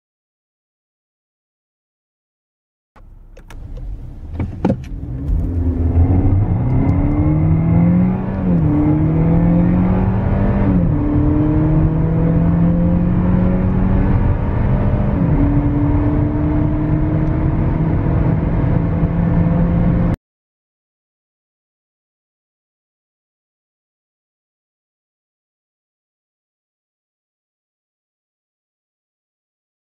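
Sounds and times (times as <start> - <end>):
clicks: 3.0 - 5.6
car engine accelerating: 3.0 - 20.2.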